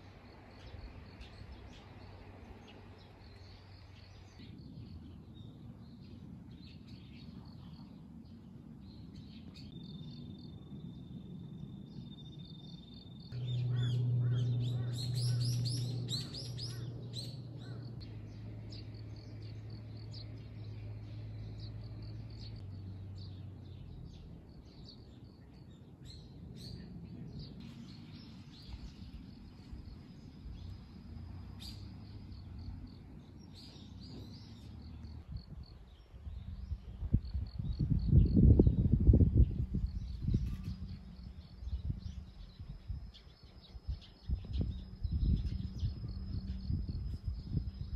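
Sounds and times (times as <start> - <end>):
low steady hum: 0.0 - 47.9
birds calling and chirping: 12.3 - 47.9.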